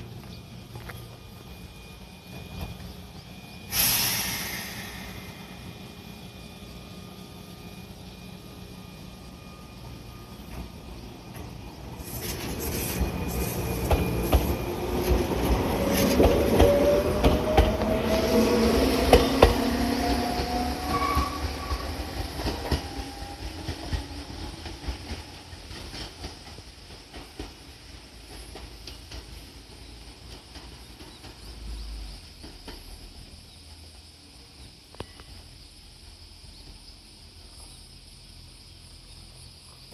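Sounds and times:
train motor whine: 0.0s - 34.0s
train wheels clattering over joints: 10.4s - 34.0s.

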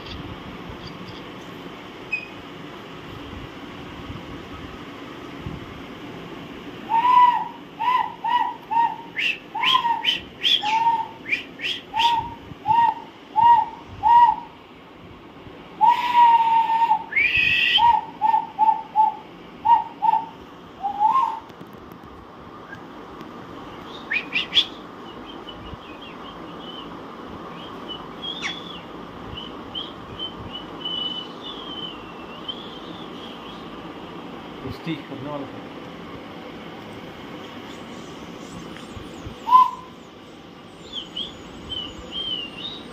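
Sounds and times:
faint high chirps: 2.1s - 2.4s
parakeet whistled calls: 2.1s - 2.4s, 7.9s - 12.2s, 23.9s - 26.9s, 27.5s - 33.6s, 38.0s - 40.1s, 40.8s - 42.9s.

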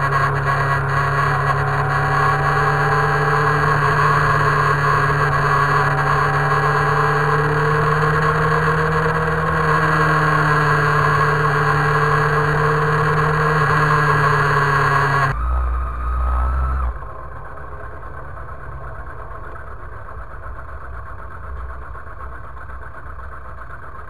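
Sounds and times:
motorcycle engine cruising: 0.0s - 24.0s.

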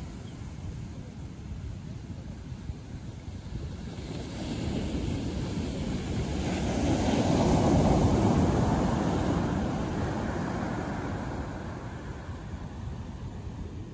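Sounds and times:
ocean wave breaking on sand: 3.4s - 13.9s.

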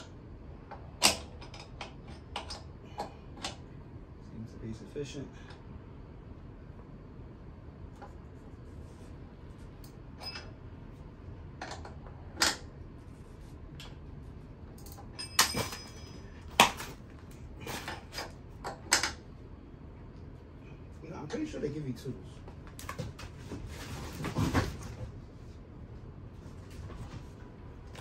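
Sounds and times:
hand tools clinking and knocking: 14.8s - 16.9s.

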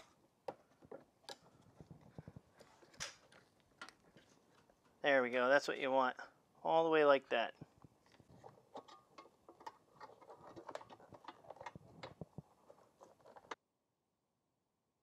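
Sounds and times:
gloved hands handling plastic parts: 0.0s - 5.0s, 7.5s - 13.6s.

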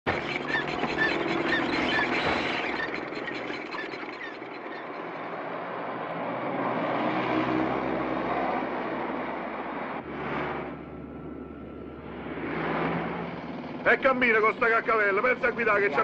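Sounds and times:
small car engine running: 0.1s - 6.0s.

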